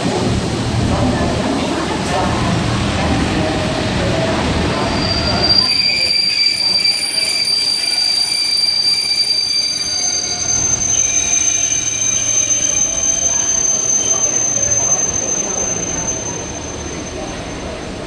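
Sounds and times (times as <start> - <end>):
train wheels squealing on rails: 4.1 - 18.0.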